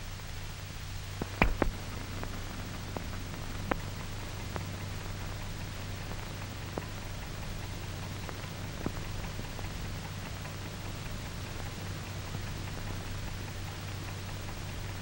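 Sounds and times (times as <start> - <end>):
film soundtrack hiss: 0.0 - 15.0
clicks and pops: 1.2 - 3.9
low hum: 1.2 - 7.5.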